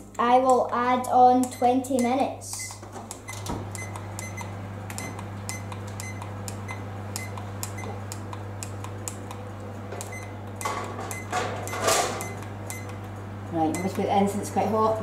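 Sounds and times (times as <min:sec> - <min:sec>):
steady low hum: 0:00.0 - 0:15.0
smartphone ticking clicks: 0:00.1 - 0:09.4, 0:12.3 - 0:13.1.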